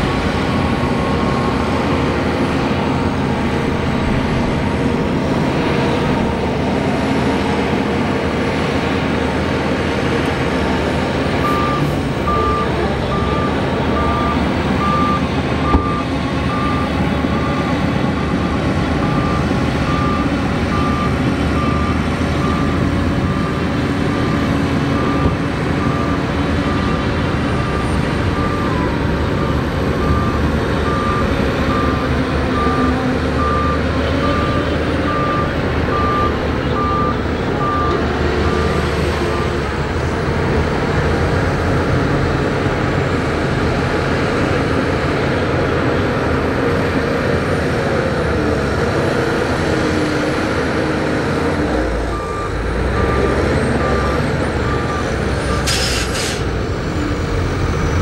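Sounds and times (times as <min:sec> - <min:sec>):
bulldozer diesel engine running: 0:00.0 - 0:58.0
reversing alarm beeping: 0:11.4 - 0:27.0, 0:27.6 - 0:39.6, 0:52.1 - 0:55.9.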